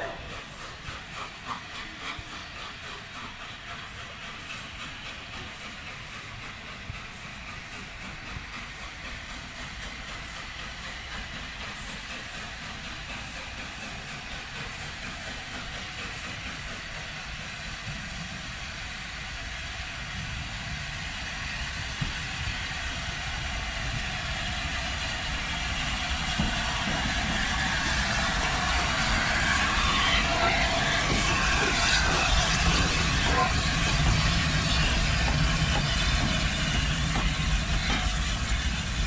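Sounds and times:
steam train approaching: 0.0s - 39.0s.

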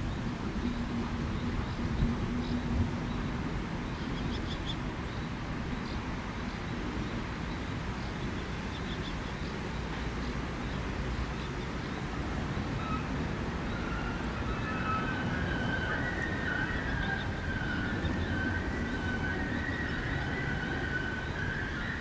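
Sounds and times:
low outdoor rumble: 10.8s - 22.0s.

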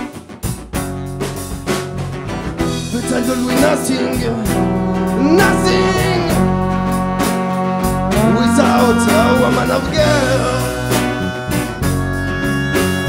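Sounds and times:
live band playing: 0.0s - 13.0s
gliding lead melody: 2.7s - 13.0s.

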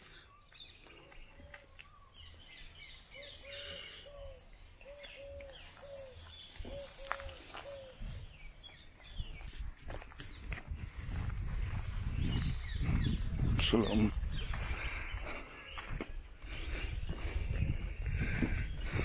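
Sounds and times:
small birds chirping: 0.0s - 19.0s
bird low hooting: 3.1s - 8.4s.

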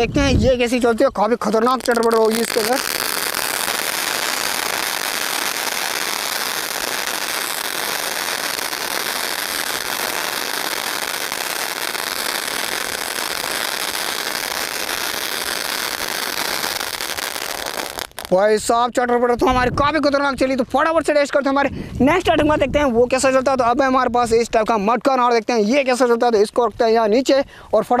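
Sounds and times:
firework fountain crackling: 0.0s - 18.8s.

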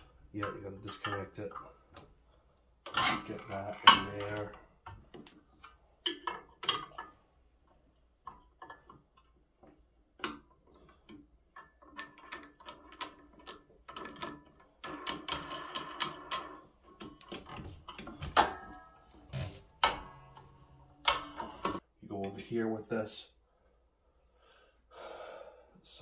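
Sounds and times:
metal parts clicking and clanking: 0.0s - 21.8s
metallic rattling: 10.2s - 21.8s.

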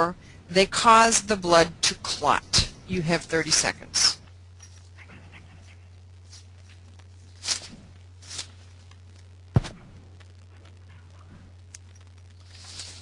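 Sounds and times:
low electrical hum: 0.0s - 13.0s
brief hissing: 7.4s - 8.5s.

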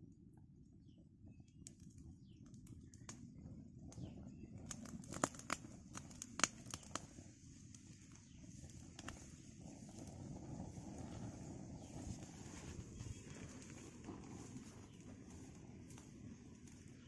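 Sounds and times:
fire crackling and popping: 0.0s - 17.0s
low steady rustle: 6.9s - 17.0s.

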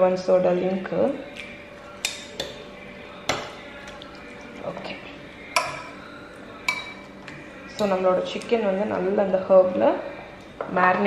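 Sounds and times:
fork clinking on ceramic plate: 6.6s - 7.0s.

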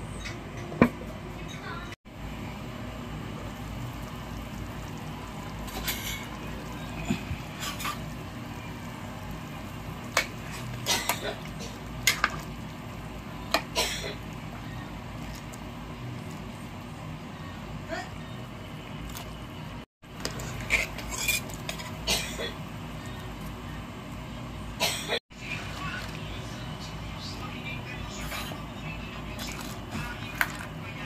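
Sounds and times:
soup boiling in a pot: 2.1s - 28.0s
metal ladle scraping and clinking pot: 7.5s - 8.1s, 20.2s - 22.0s.

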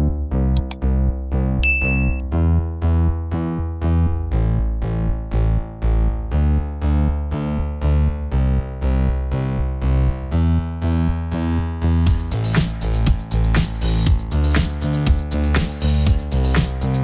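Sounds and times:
steady bass: 0.0s - 17.0s
drum beat with hi-hat: 12.1s - 17.0s.

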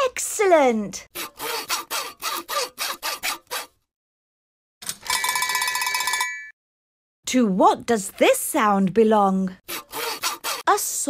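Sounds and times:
cartoon hand saw cutting wood: 1.0s - 3.9s, 9.6s - 11.0s.

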